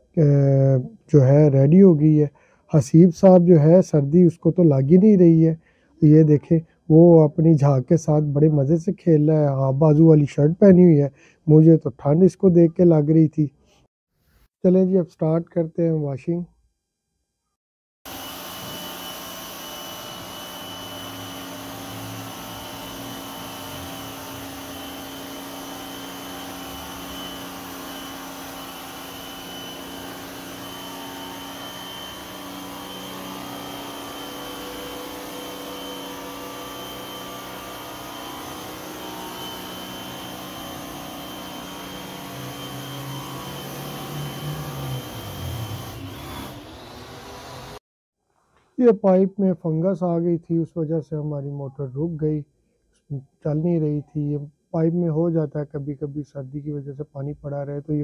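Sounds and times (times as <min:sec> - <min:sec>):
pressure washer pump droning: 0:18.1 - 0:47.8
water jet hissing: 0:18.1 - 0:47.8.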